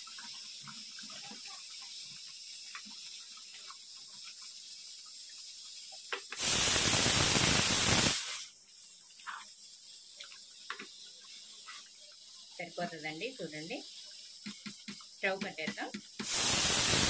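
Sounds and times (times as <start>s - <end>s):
loud even hiss: 6.1s - 8.6s, 14.4s - 17.0s.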